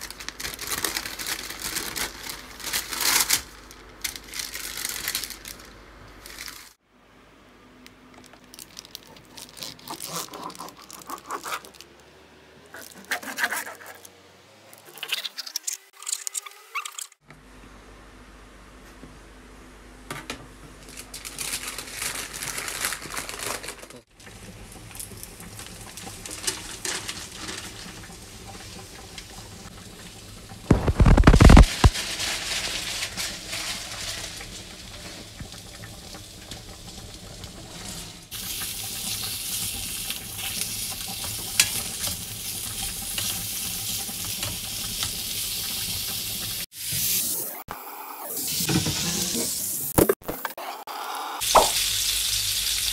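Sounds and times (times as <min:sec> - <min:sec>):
meat sizzling in a pan: 0:24.6 - 0:47.4, 0:51.4 - 0:52.9
loud thump: 0:51.6 - 0:51.8.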